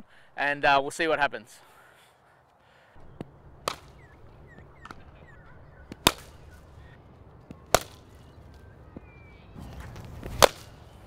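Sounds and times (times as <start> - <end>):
cricket ball cracking off bat: 3.0 - 4.1, 5.8 - 6.5, 7.4 - 8.3, 9.7 - 10.8.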